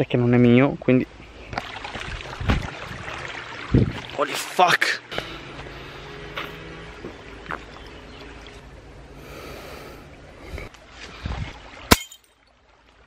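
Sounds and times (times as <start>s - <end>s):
heavy nasal breathing: 5.1s - 6.7s, 9.1s - 10.7s.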